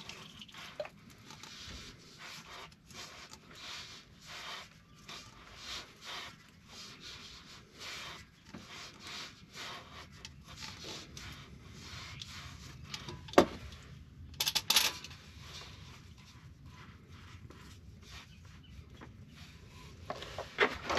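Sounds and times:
rattle of metal clanks: 14.4s - 15.2s.

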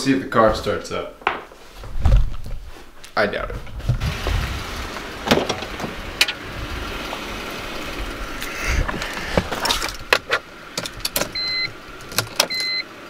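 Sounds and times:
dashboard warning chime beeping: 11.3s - 11.8s, 12.4s - 12.9s
clicks and knocks in car: 12.0s - 12.7s.

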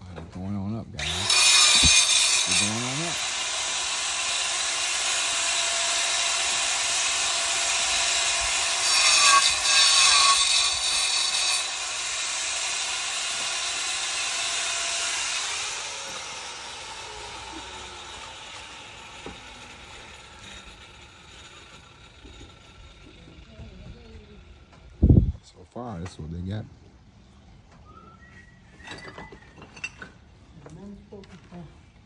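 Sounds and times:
power saw cutting stone: 1.0s - 24.8s.

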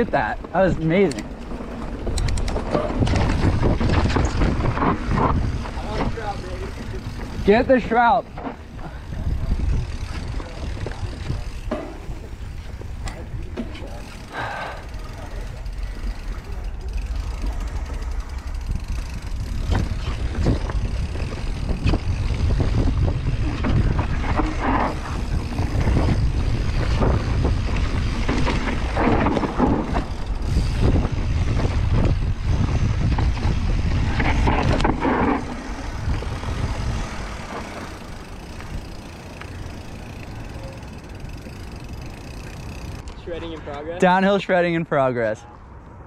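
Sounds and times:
bike rattling over bumps: 0.0s - 44.5s
wind buffeting microphone: 1.2s - 7.6s, 8.2s - 43.0s.

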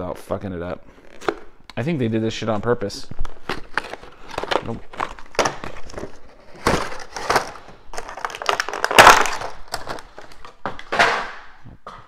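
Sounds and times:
cardboard box tearing: 3.3s - 9.4s.

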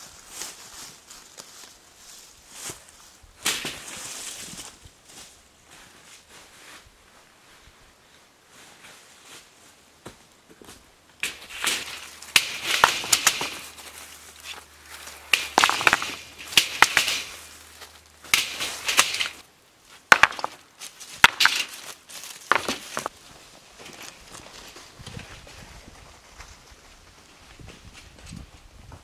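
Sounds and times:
stones clacking together: 11.2s - 19.4s, 20.1s - 23.2s.

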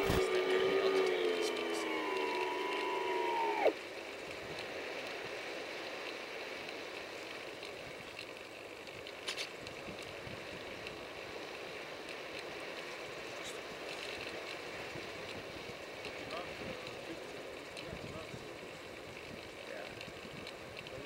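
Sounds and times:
electric motor whine: 0.0s - 3.8s.

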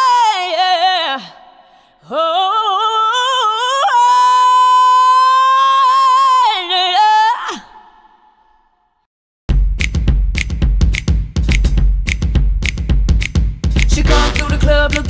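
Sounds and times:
high voice singing unaccompanied: 2.1s - 8.0s, 13.9s - 15.0s.

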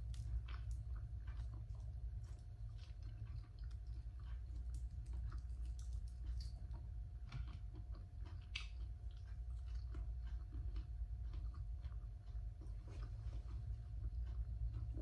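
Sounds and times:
person chewing meat: 0.0s - 15.0s
steady low hum: 0.0s - 15.0s
wet clicks and smacks of mouth: 8.3s - 9.2s.

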